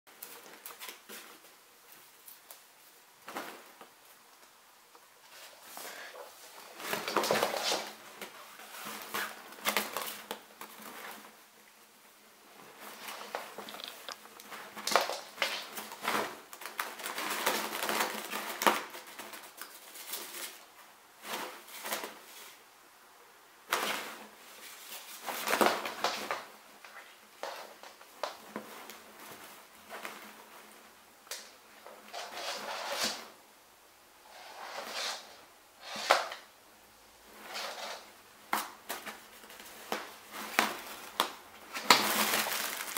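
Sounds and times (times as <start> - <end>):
fabric tunnel rustling and crackling: 12.3 - 22.6, 37.3 - 42.9.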